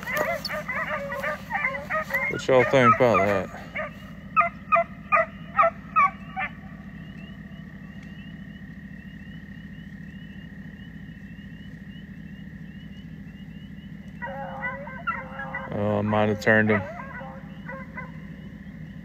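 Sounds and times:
hound barking: 0.0s - 9.7s, 13.6s - 19.0s
steady low hum: 0.0s - 19.0s.

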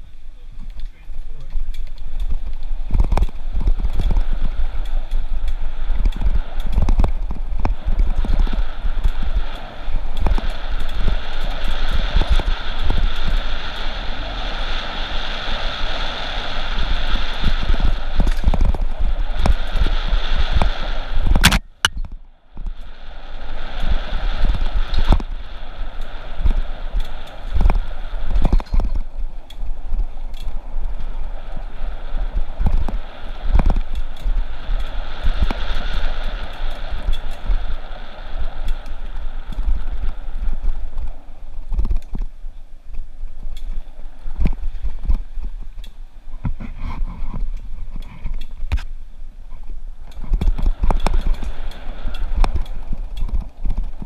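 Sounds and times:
wind buffeting microphone: 0.0s - 54.0s
bike rattling and knocking: 0.5s - 13.9s, 16.8s - 22.9s, 23.7s - 31.6s, 38.6s - 49.0s, 49.6s - 54.0s
sharp crack: 0.7s - 31.1s.

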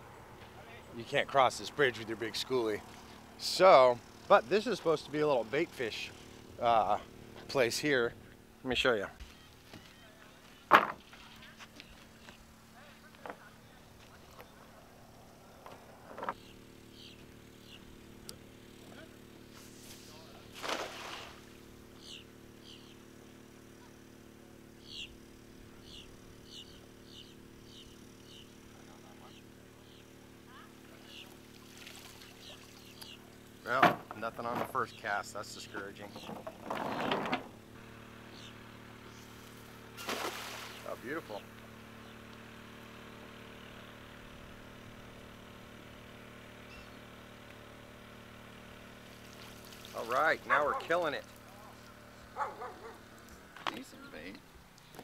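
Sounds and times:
faint outdoor background noise: 0.0s - 55.0s
steady low hum: 0.0s - 55.0s
bird calling: 9.2s - 12.4s, 16.2s - 17.9s, 22.0s - 23.0s, 24.8s - 25.2s, 25.8s - 31.4s, 32.2s - 33.8s, 35.9s - 36.6s, 38.3s - 39.3s, 46.6s - 47.0s.

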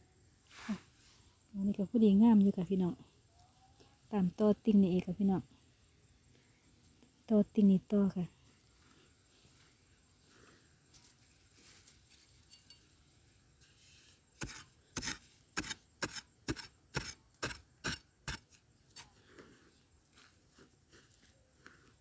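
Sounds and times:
faint scrapes and ticks: 8.3s - 16.2s, 18.4s - 22.0s
metal tool striking hard soil: 14.4s - 18.6s.

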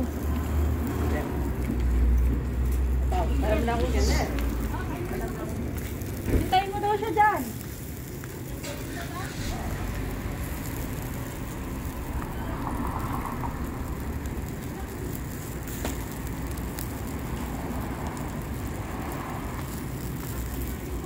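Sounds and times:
street traffic rumble: 0.0s - 21.0s
sharp pops from grill: 5.7s - 21.0s.

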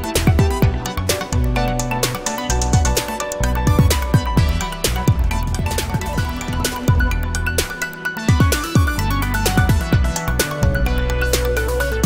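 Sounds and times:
electronic music with beat: 0.0s - 12.0s
sharp percussion: 0.0s - 12.0s
deep bass hits: 2.7s - 7.7s.

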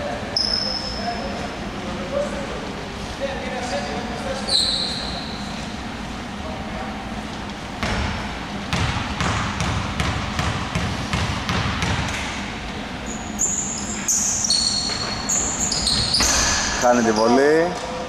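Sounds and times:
sneakers squeaking on floor: 0.4s - 1.4s, 4.4s - 5.8s, 13.0s - 18.0s
basketball bouncing on hardwood: 7.8s - 12.2s.

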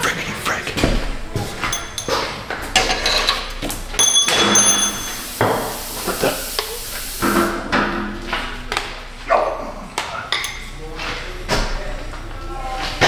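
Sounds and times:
metal tools clanking and scraping: 1.3s - 5.3s, 10.3s - 11.1s
short metallic ring: 4.0s - 5.2s.

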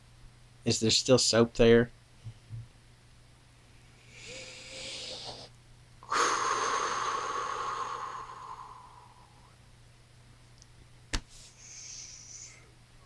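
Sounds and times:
breath sounds: 4.0s - 9.6s, 11.3s - 12.7s.

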